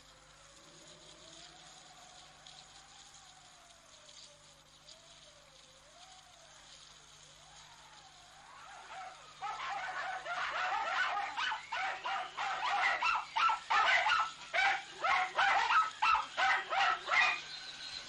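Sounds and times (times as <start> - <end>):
dog barking rapidly: 8.8 - 17.5.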